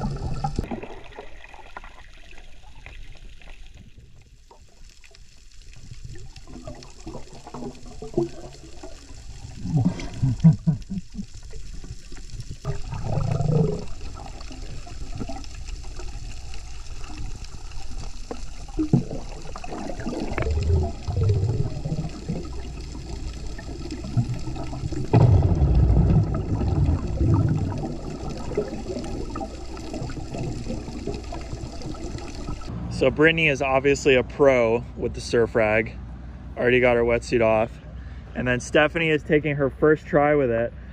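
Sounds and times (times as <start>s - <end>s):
underwater water rushing and bubbling: 0.0s - 32.7s.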